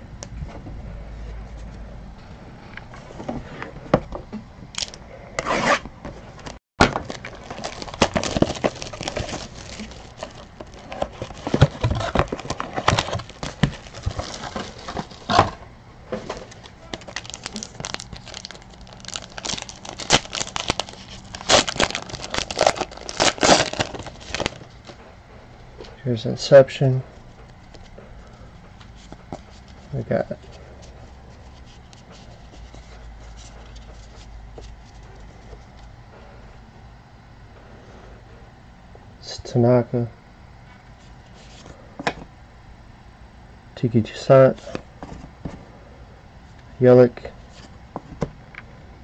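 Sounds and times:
packaging crinkling and tearing: 6.8 - 15.5, 16.2 - 24.7.

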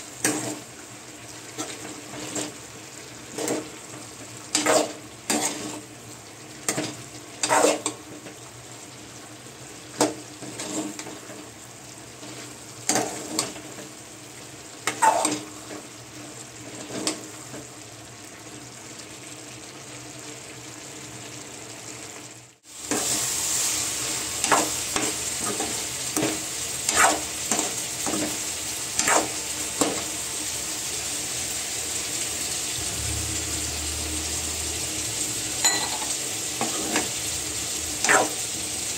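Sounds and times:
food sizzling in a pan: 0.0 - 38.9
spoon stirring and scraping pan: 1.5 - 2.6, 3.3 - 5.9, 6.7 - 8.3, 9.9 - 11.5, 12.2 - 13.9, 14.8 - 15.9, 16.8 - 17.7, 24.4 - 30.1, 35.6 - 37.2, 38.0 - 38.4.

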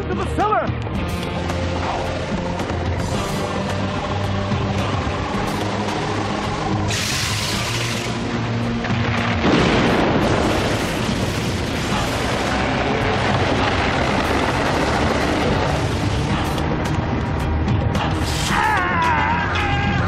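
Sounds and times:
background music: 0.0 - 20.0
rumbling blast of cracking wall: 6.8 - 17.3.

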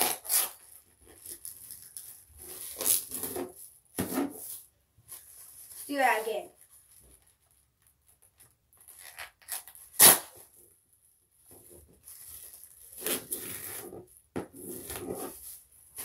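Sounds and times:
plastic sheet crackling and rustling: 4.3 - 9.0.

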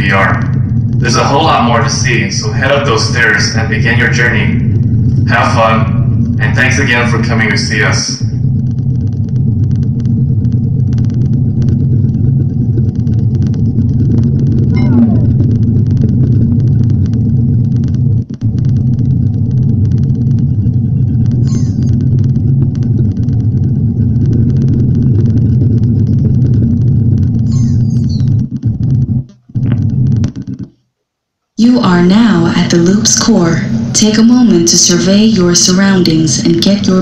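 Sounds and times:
low rumbling hum: 0.0 - 37.0
falling electronic sweeps: 14.7 - 15.6.

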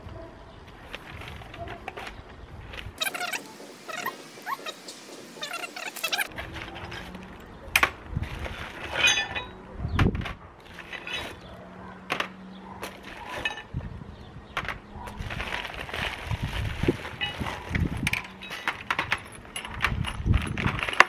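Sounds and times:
metal tools clinking on table: 8.9 - 9.6
plastic bag rustling: 15.1 - 19.3.

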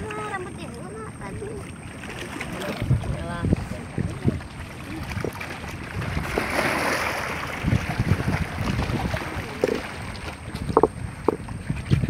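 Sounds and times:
sea water washing against rocks: 0.0 - 12.0
wind buffeting microphone: 2.5 - 12.0.

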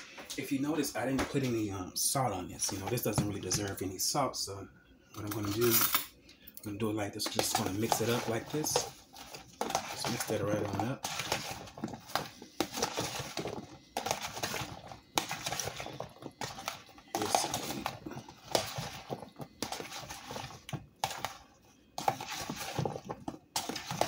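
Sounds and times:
spoon scraping plastic container: 2.6 - 3.9, 5.2 - 5.7, 7.2 - 24.0.

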